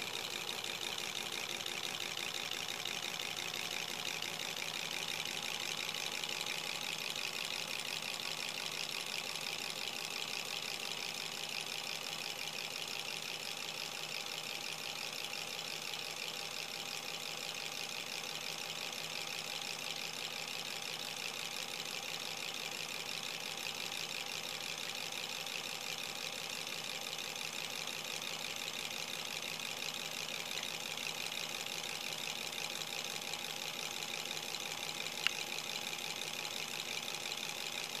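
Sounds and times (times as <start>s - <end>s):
model engine mechanical whir: 0.0s - 38.0s.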